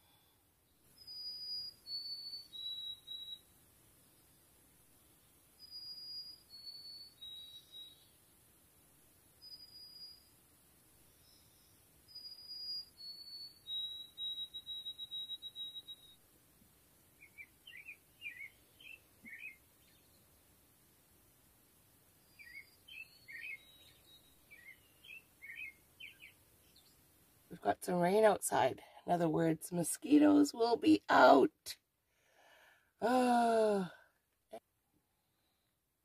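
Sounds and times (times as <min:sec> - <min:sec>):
bird chirps: 0:00.8 - 0:03.5, 0:05.1 - 0:08.2, 0:09.4 - 0:10.4, 0:11.0 - 0:16.3, 0:17.2 - 0:20.3, 0:22.2 - 0:27.0.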